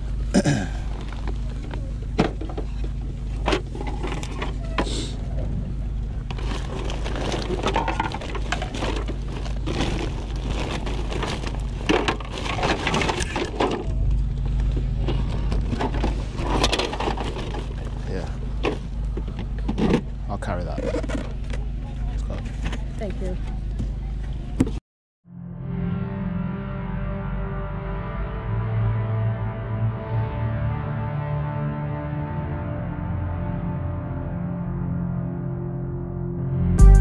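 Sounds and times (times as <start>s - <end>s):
low background hum: 0.0s - 24.8s
plastic box knocks and crinkles: 6.3s - 13.8s.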